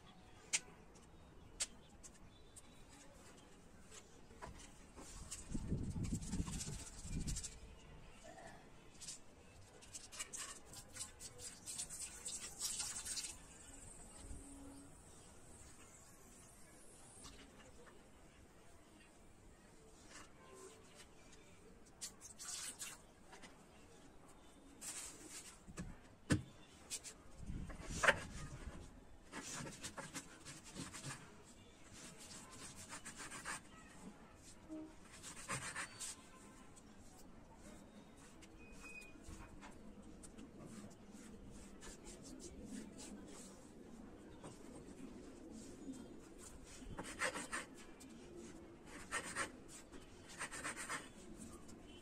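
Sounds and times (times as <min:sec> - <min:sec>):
hands rubbing clay paste: 0:39.3 - 0:51.2.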